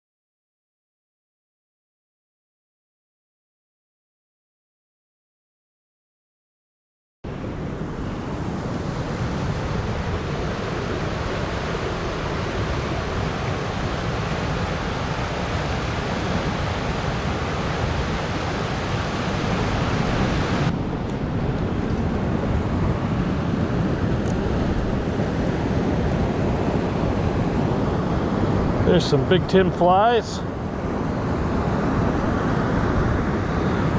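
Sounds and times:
dull steady rumble: 0:07.5 - 0:29.9
water rushing over a dam: 0:08.3 - 0:21.4, 0:22.0 - 0:33.9.

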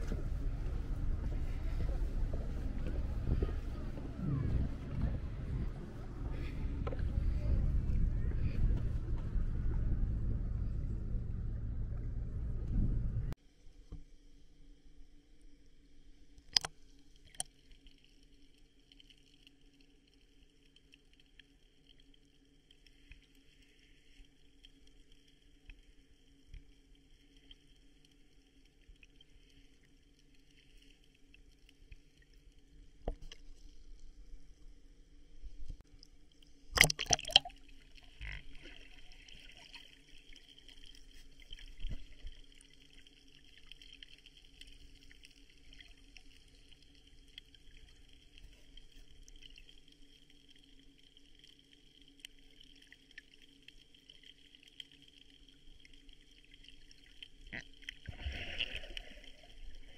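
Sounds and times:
sea water sloshing and trickling: 0:15.5 - 0:59.9.

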